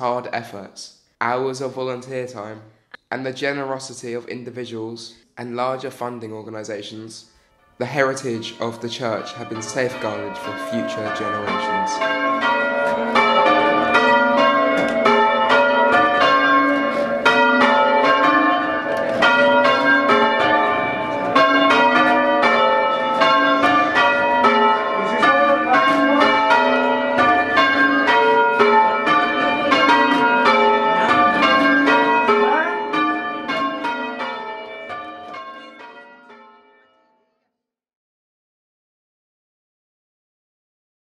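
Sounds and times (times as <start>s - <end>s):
church bells ringing: 6.8s - 37.2s.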